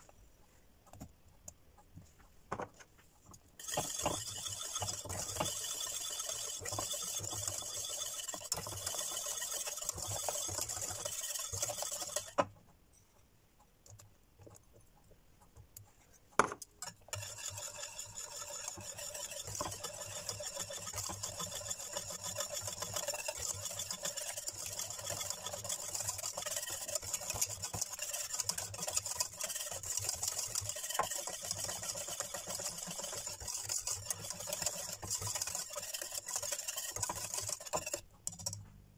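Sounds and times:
whisk scraping a metal pan: 0:03.6 - 0:12.4, 0:16.8 - 0:38.6.

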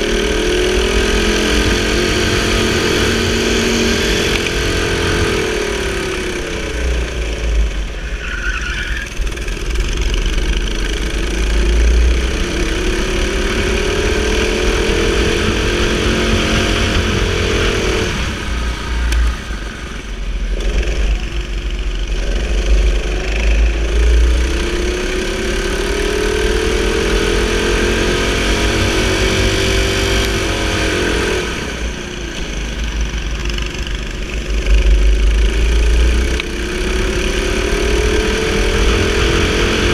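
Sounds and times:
go-kart engine at full throttle: 0:00.0 - 0:39.9
low rumble: 0:09.0 - 0:27.0.

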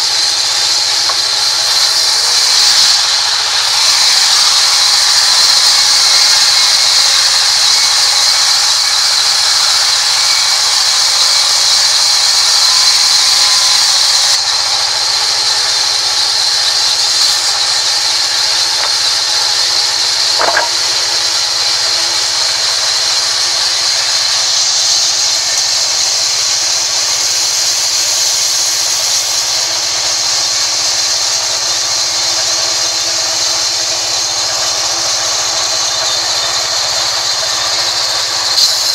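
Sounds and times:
band saw cutting wood: 0:00.0 - 0:38.9
sharp knock: 0:20.4 - 0:20.8.

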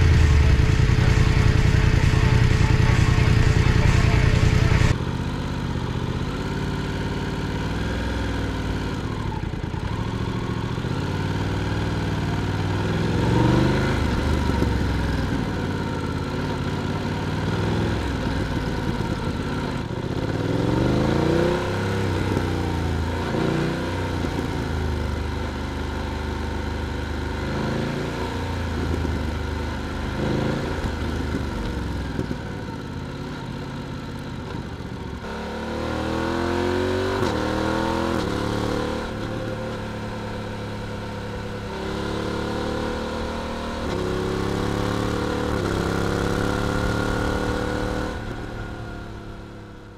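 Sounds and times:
motorcycle engine accelerating: 0:00.0 - 0:49.9.

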